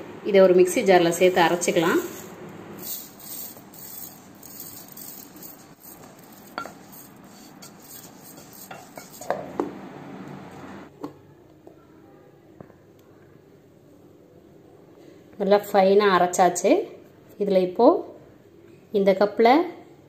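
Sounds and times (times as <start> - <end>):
grains pattering on steel: 2.8 - 9.2.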